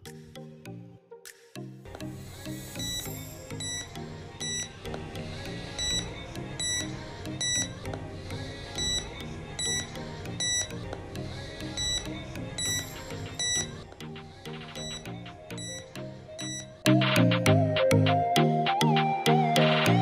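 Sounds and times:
background music: 0:00.0 - 0:20.0
electronic alarm beeps: 0:02.6 - 0:04.8, 0:05.8 - 0:07.7, 0:08.8 - 0:10.8, 0:11.8 - 0:13.8, 0:14.5 - 0:17.4.

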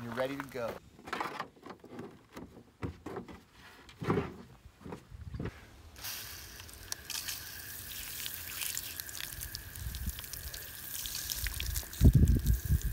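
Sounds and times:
shower nozzle spraying water: 0:06.0 - 0:12.9
water pattering on ground: 0:06.0 - 0:12.9.

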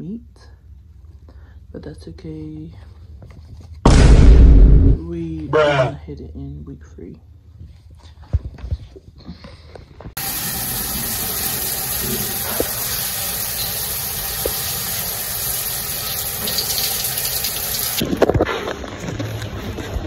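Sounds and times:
shower water spraying on tiles: 0:10.2 - 0:18.0.

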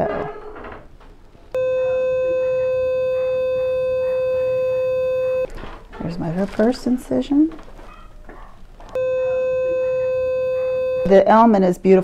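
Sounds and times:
electronic activation tone: 0:01.6 - 0:05.5, 0:09.0 - 0:11.2.

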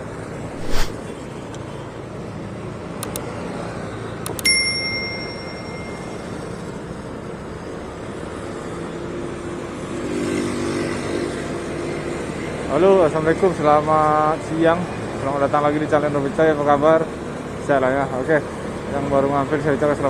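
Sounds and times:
traffic noise: 0:00.0 - 0:20.0
wind: 0:00.0 - 0:20.0
light clicks: 0:03.0 - 0:03.2
bell-like ding: 0:04.4 - 0:06.7.

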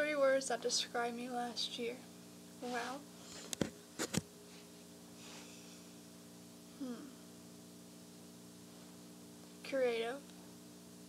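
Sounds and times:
steady low hum: 0:00.0 - 0:11.0
faint breath: 0:04.5 - 0:06.0.

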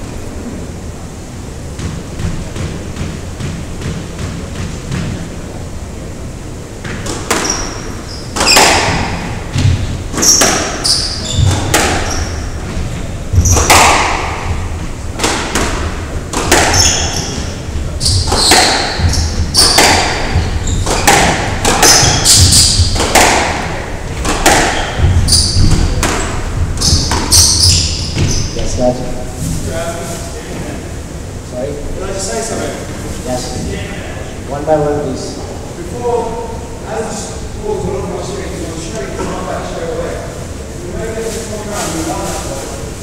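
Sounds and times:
squash ball hitting rackets and walls: 0:01.7 - 0:05.4, 0:06.8 - 0:28.7
shoes squeaking on wooden floor: 0:06.9 - 0:15.0, 0:16.4 - 0:29.7.

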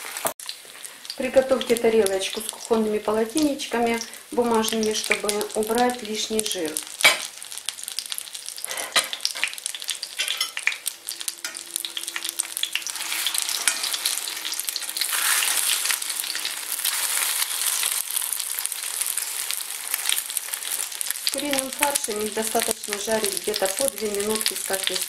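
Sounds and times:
patties sizzling in oil: 0:00.0 - 0:25.0
fork turning patties: 0:06.8 - 0:25.0.

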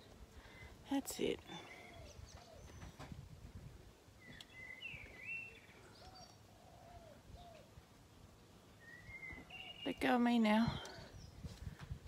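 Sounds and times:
faint bird chirps: 0:01.5 - 0:03.1, 0:04.2 - 0:07.7, 0:08.7 - 0:11.5.

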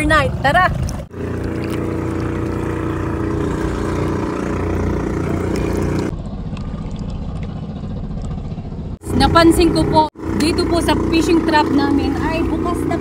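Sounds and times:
small boat engine running: 0:00.0 - 0:13.0.

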